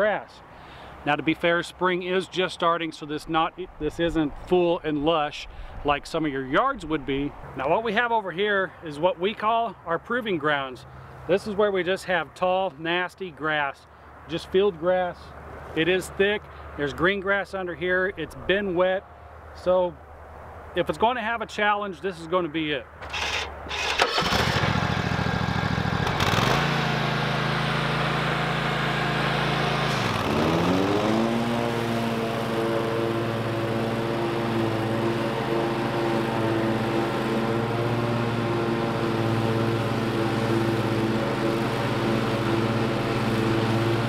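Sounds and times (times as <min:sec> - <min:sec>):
mower engine cutting grass: 0:23.0 - 0:44.0.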